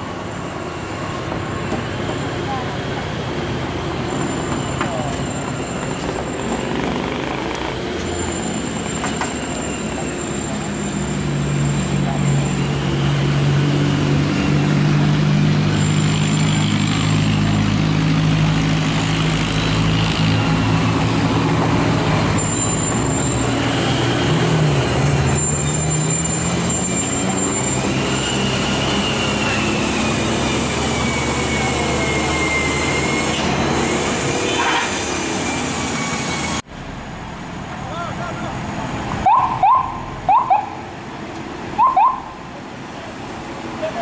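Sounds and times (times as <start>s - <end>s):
high squeal falling in pitch: 22.4s - 23.4s, 25.3s - 33.4s.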